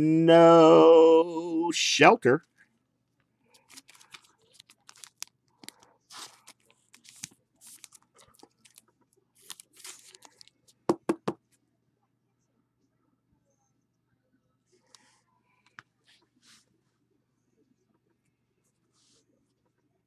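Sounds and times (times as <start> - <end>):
plastic rustling and scraping: 3.5 - 10.8.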